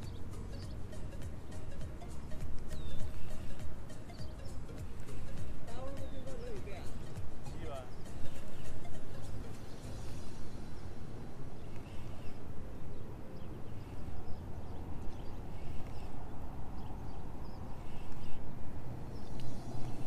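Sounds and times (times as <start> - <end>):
faint high chirps: 0.0 - 11.0.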